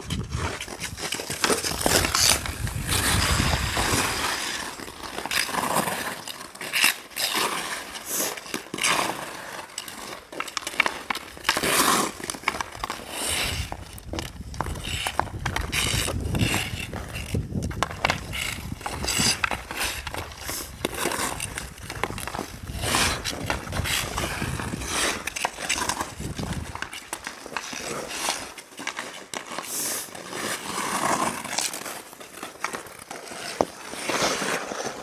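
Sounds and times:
skate blades scraping ice: 0.0s - 35.0s
hockey stick clicking on puck: 0.1s - 35.0s.

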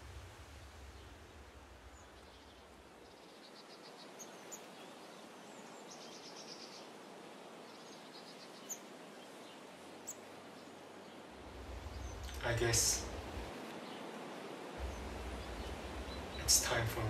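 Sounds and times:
low hum: 0.0s - 3.0s, 11.4s - 13.6s, 14.8s - 17.0s
small birds chirping: 0.0s - 17.0s.

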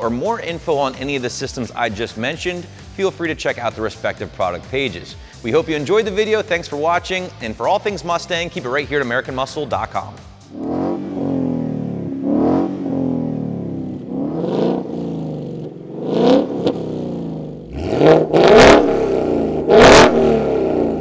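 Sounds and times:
car engine revving in throttle blips: 10.5s - 21.0s.

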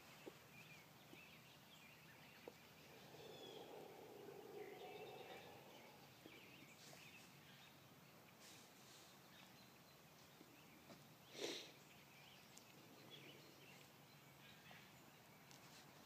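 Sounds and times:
faint bird chirps: 0.0s - 7.9s.

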